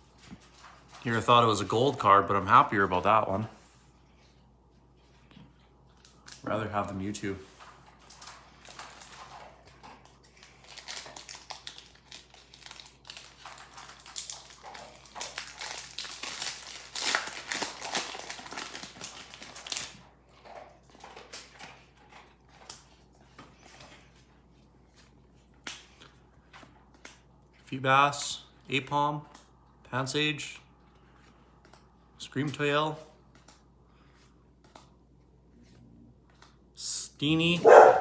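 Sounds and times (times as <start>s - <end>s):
foil wrapper tearing and crinkling: 10.3s - 20.0s.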